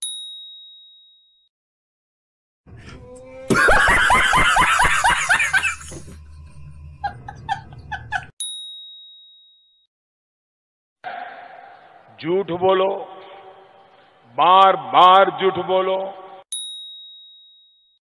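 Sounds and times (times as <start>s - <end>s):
man laughing loudly: 3.5s - 6.2s, 7.0s - 8.3s.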